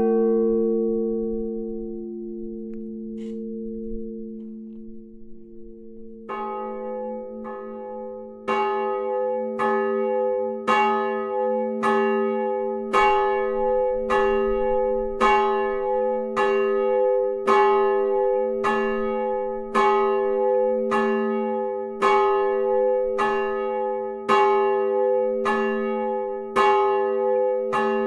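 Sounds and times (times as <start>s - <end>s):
church bell ringing: 0.0s - 28.0s
low hum: 2.4s - 6.3s.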